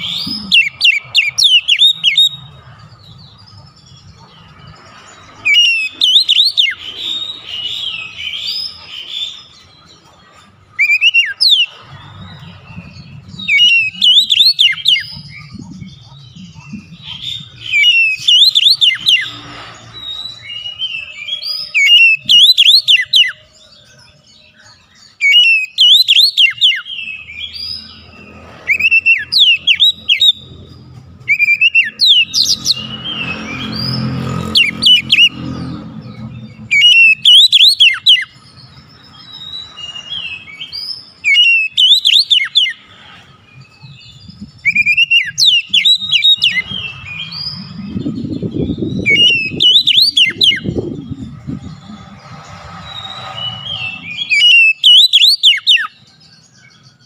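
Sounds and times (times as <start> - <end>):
bird singing whistles: 0.0 - 2.5, 5.5 - 9.6, 10.8 - 11.8, 12.8 - 23.4, 25.0 - 27.9, 28.6 - 30.5, 31.3 - 35.4, 36.7 - 42.8, 43.8 - 52.0, 52.8 - 56.8
low rumble: 50.3 - 54.3.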